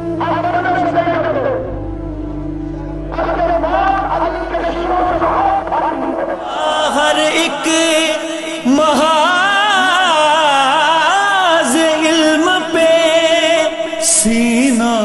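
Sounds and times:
background hum: 0.0 - 6.8
man singing devotional song: 0.0 - 15.0.

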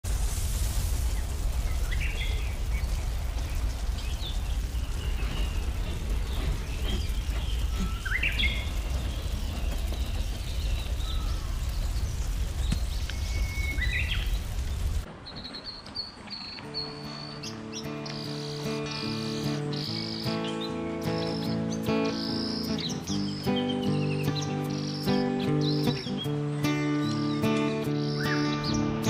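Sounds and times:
river rushing: 0.1 - 15.1
birds chirping: 1.1 - 29.0.

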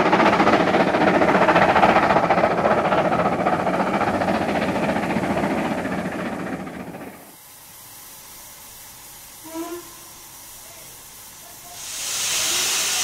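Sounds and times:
steam locomotive running: 0.0 - 13.0
steam escaping hiss: 6.9 - 13.0
faint hiss: 7.2 - 13.0.

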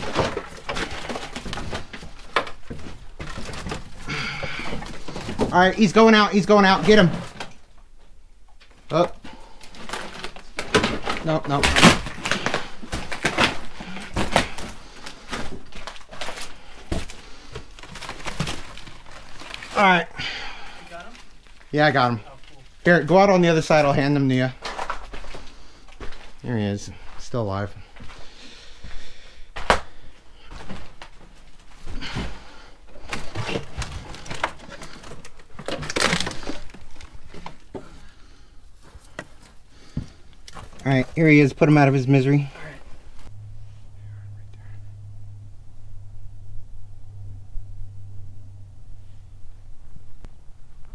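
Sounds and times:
wooden boards knocking and scraping: 0.0 - 5.6
rubble being stepped on and shifted: 0.0 - 8.0, 8.6 - 26.4, 29.5 - 43.3.

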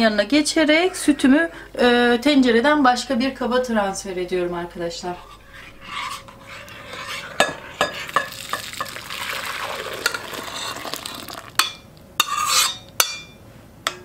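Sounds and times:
milk pouring into a glass bowl: 8.2 - 11.6.

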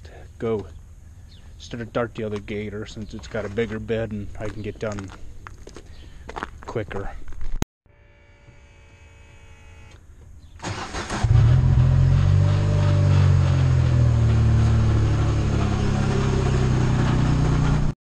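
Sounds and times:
engine idling: 10.7 - 17.9.

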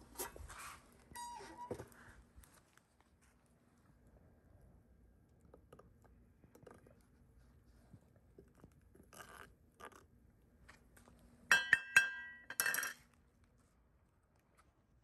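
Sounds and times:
spoon clinking on iron skillet: 11.5 - 13.0.

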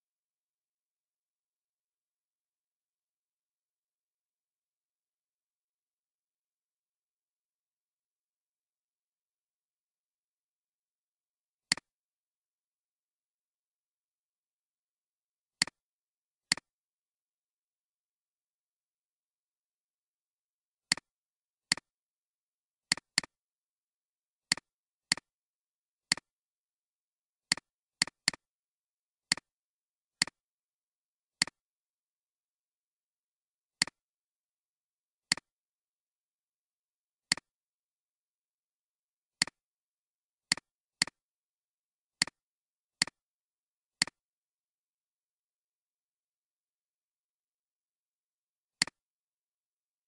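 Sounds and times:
computer mouse clicks: 11.7 - 11.9, 16.5 - 16.7, 35.3 - 35.5, 37.3 - 37.5.

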